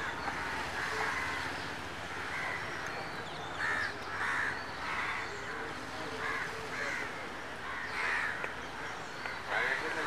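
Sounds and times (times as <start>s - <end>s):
outdoor background noise: 0.0s - 10.0s
crows cawing: 3.6s - 5.3s, 6.2s - 8.5s.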